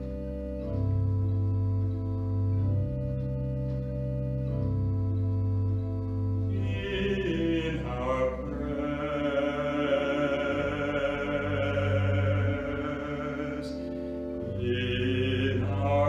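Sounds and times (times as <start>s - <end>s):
keyboard chords: 0.0s - 16.0s
person singing hymn: 6.5s - 16.0s.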